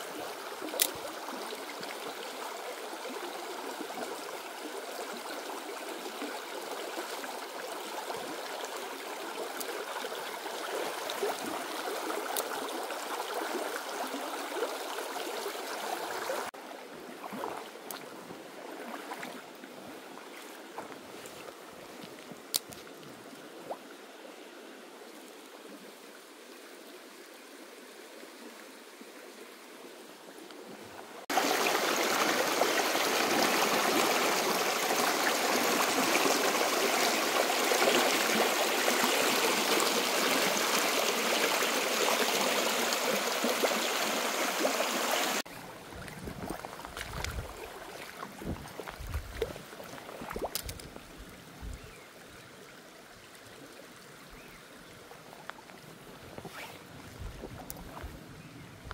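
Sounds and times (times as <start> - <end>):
stream water flowing: 0.0 - 58.9
loud rush of water: 31.2 - 45.5.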